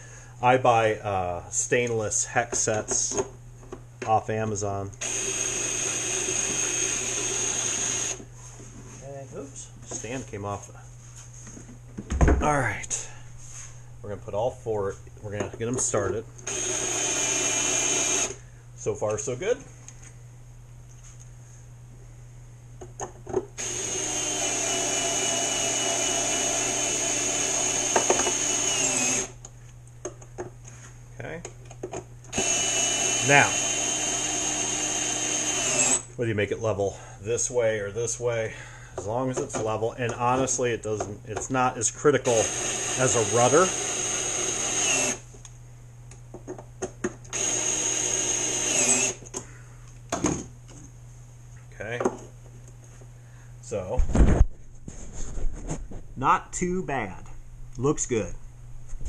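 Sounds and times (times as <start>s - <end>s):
cordless screwdriver whining: 5.0s - 8.2s, 16.4s - 18.4s, 23.6s - 29.4s, 32.3s - 36.1s, 42.2s - 45.2s, 47.3s - 49.4s.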